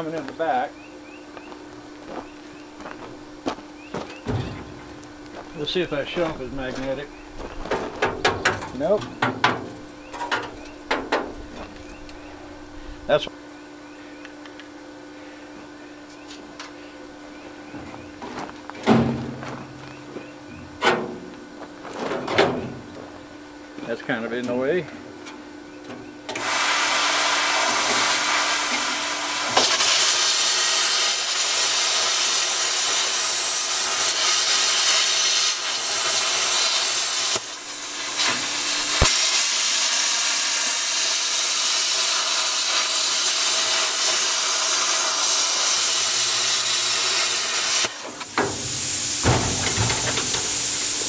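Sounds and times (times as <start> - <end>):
plasma cutter hissing through metal: 26.4 - 51.0.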